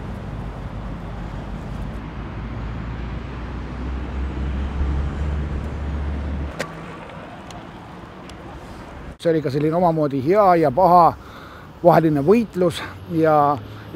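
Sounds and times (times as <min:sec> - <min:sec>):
deep vehicle drone: 0:00.0 - 0:09.2
road traffic rumble: 0:00.0 - 0:13.9.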